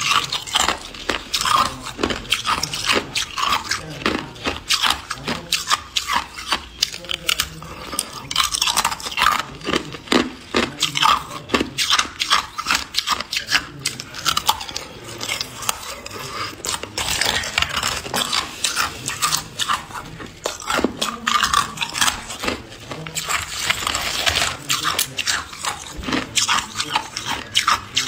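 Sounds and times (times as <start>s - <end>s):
ice cubes cracking when bitten: 0.0s - 28.0s
ice grinding crunch: 0.0s - 28.0s.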